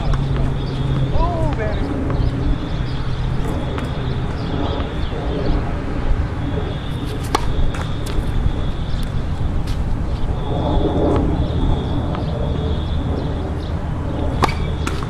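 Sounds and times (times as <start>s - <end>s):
steady low rumble: 0.0s - 15.0s
tennis balls struck by rackets: 7.0s - 8.3s, 14.3s - 15.0s.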